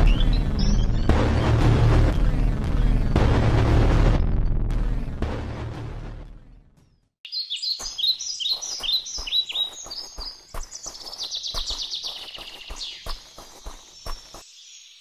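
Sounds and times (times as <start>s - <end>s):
birds chirping and trilling: 0.0s - 1.6s, 7.3s - 15.0s
deep booming sound: 0.0s - 6.9s.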